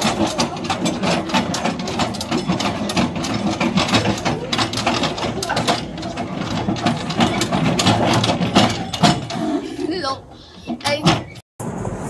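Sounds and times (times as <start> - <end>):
handcar lever mechanism clattering: 0.0 - 9.5.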